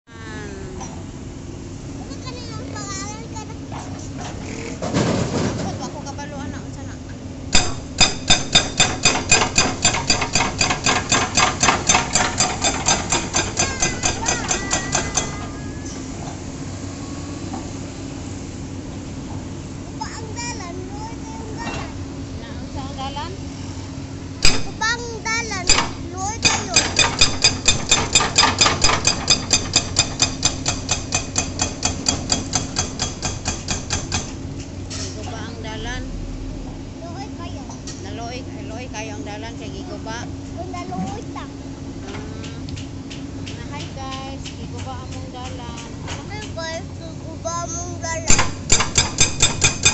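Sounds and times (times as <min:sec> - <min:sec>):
excavator engine hum: 0:00.1 - 0:49.9
hydraulic breaker hammering road: 0:07.5 - 0:16.0, 0:24.4 - 0:35.0, 0:48.0 - 0:49.9.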